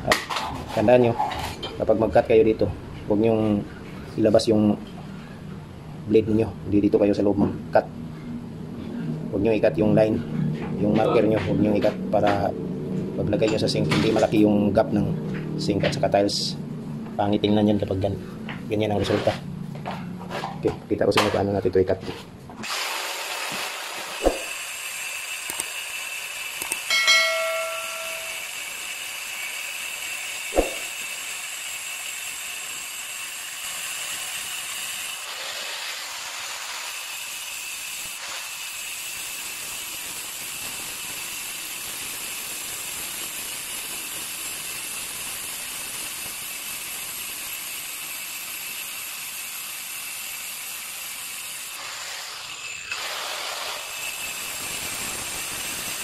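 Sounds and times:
angle grinder cutting stone: 22.6 - 56.0
sharp knocks: 24.2 - 24.5, 30.5 - 30.9
short ringing tone: 26.9 - 28.6.

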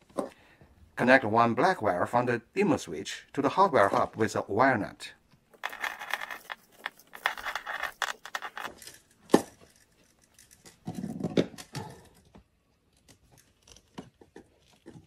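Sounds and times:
wires rustling and scraping: 5.5 - 11.3.

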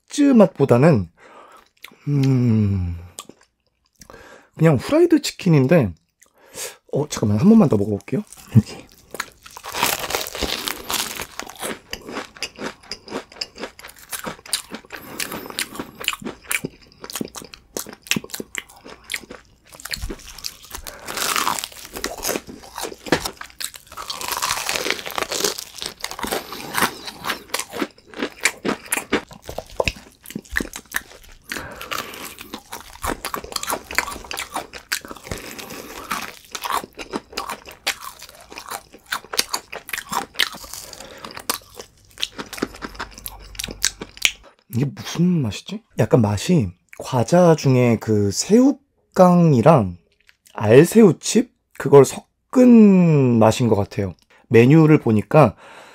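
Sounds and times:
biting crunchy fried chicken: 8.2 - 44.4
chewing with small crackles: 8.2 - 44.7, 50.1 - 50.6.

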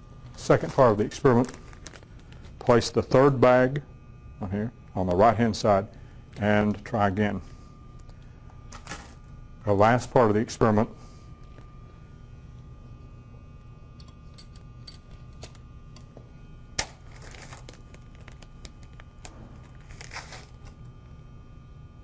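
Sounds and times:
steady low hum: 0.0 - 22.0
plastic bags crinkling: 0.4 - 2.6, 16.9 - 20.8.

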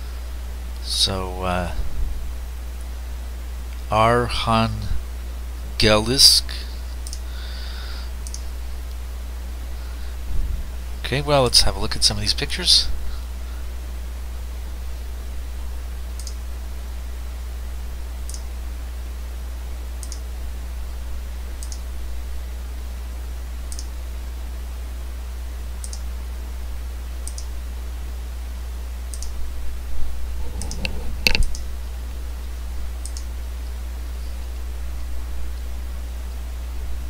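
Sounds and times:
steady low hum: 0.0 - 37.0
mouse button clicking: 30.6 - 31.6.

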